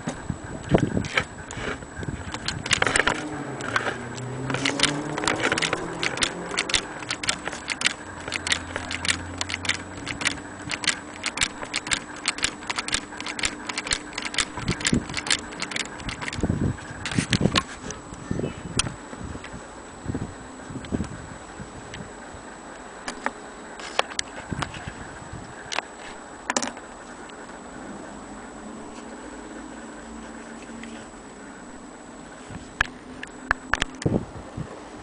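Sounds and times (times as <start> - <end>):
faint hum: 0.0 - 35.0
toy sewing machine clicking: 2.3 - 17.7.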